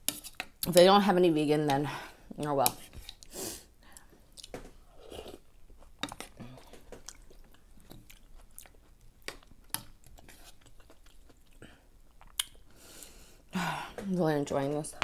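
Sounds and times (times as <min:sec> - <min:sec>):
close-up chewing: 0:05.2 - 0:12.6.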